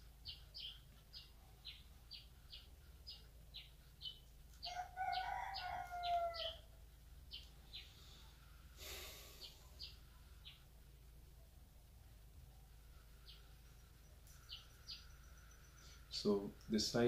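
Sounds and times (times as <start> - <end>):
small bird chirping: 0.0 - 17.0
rooster crowing: 4.6 - 6.8.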